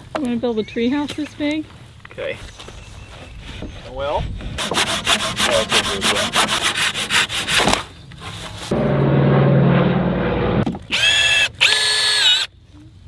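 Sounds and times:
handsaw sawing wood: 4.6 - 7.9
cordless drill driving screws: 10.9 - 12.5.

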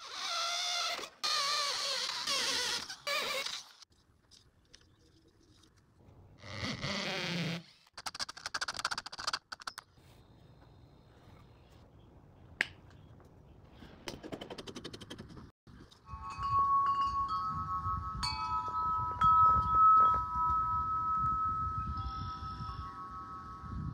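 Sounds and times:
wind rumbling on microphone: 15.2 - 23.9
metal wind chime ringing: 16.0 - 23.9.

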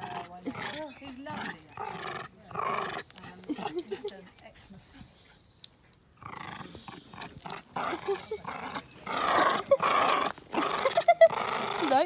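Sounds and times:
dog growling in play: 0.0 - 3.8, 6.2 - 12.0.

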